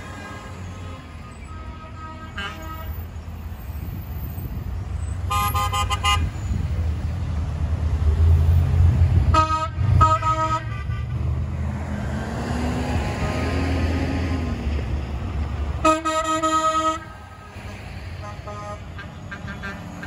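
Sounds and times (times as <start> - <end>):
truck horns tooting: 0.0 - 3.2, 5.0 - 6.8, 9.2 - 11.5, 13.1 - 13.9, 15.7 - 20.0
heavy truck engines rumbling: 0.0 - 20.0.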